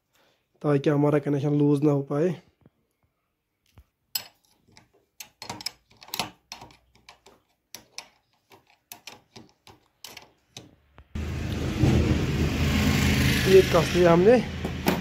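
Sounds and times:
spanner clicking on metal nut: 4.2s - 10.7s.

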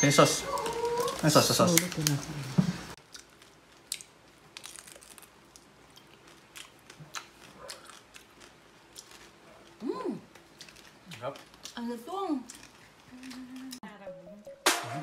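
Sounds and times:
crispy skin crunching when chewed: 0.5s - 2.2s, 3.0s - 11.8s, 12.4s - 13.8s
person humming: 13.1s - 13.8s.

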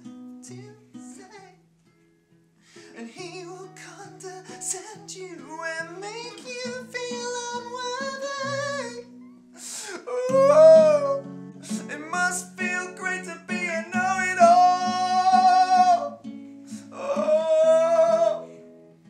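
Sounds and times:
strummed acoustic guitar: 0.0s - 19.0s
man singing: 0.4s - 1.6s, 2.9s - 9.2s, 9.8s - 18.7s.

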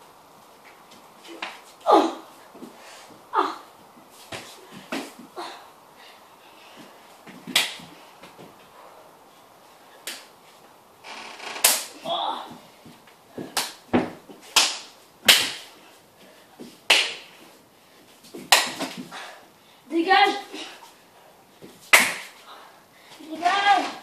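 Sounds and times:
slaps on skin: 7.5s - 7.9s, 10.0s - 10.3s, 13.6s - 13.8s, 14.6s - 15.7s, 16.9s - 17.3s, 18.5s - 19.0s, 21.9s - 22.4s.

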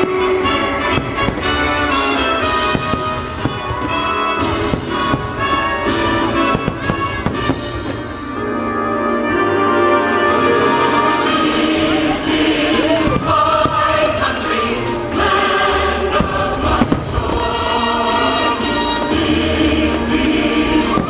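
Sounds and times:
fireworks popping and crackling: 0.0s - 8.4s, 12.8s - 21.0s
orchestral music with brass: 0.0s - 21.0s.

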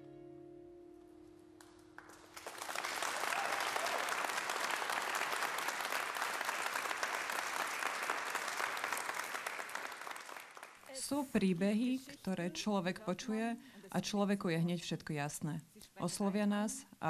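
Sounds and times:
audience applauding: 1.6s - 10.9s.

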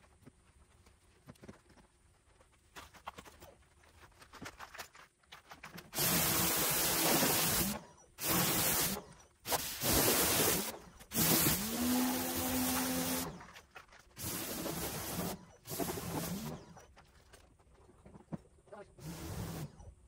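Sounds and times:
pump hum: 5.9s - 17.0s
pressure washer spraying water: 6.0s - 13.3s, 14.2s - 16.6s, 19.0s - 19.7s.

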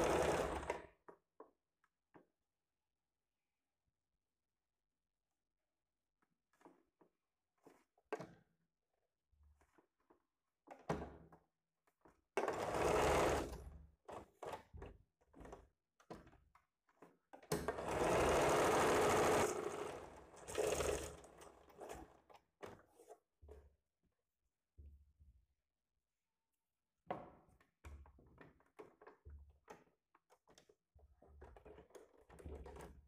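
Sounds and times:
sewing machine stitching: 0.0s - 0.9s, 12.4s - 14.3s, 17.6s - 22.3s.

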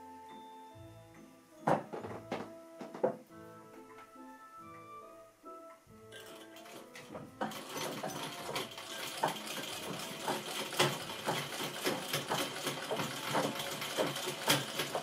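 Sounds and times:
treadle sewing machine stitching: 6.2s - 15.0s.

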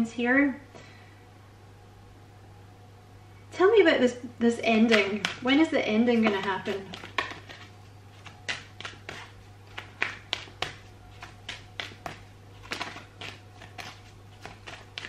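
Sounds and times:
low steady hum: 0.0s - 15.0s
cards being shuffled: 4.8s - 5.5s, 6.1s - 15.0s.

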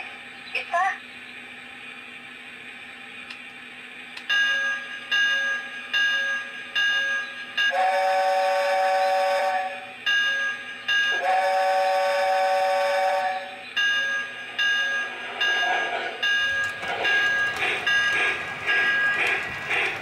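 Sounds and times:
locomotive bell ringing: 4.3s - 8.3s, 10.0s - 11.5s, 13.4s - 20.0s
steam whistle blasts: 7.7s - 9.9s, 11.1s - 13.6s.

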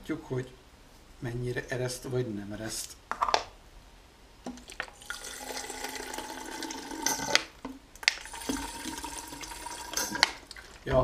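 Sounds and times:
water pouring into plastic bottle: 4.5s - 10.9s.

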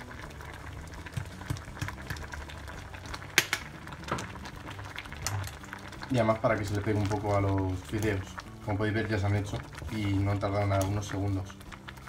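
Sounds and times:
water boiling in a pot: 0.0s - 12.0s
small clicks and pops: 1.0s - 6.1s.

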